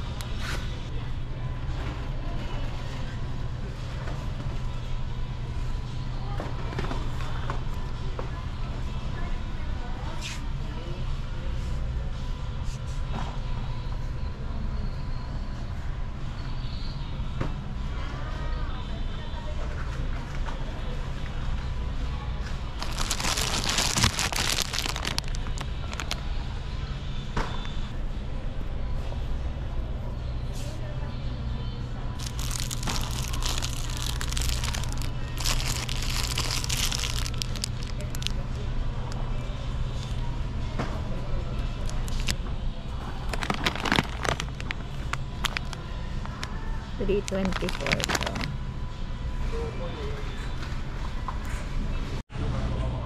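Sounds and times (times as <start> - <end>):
low store background rumble: 0.0 - 53.0
plastic wrapper crinkling: 22.8 - 26.2, 32.2 - 38.4, 41.8 - 42.4, 43.3 - 46.4, 47.2 - 48.5.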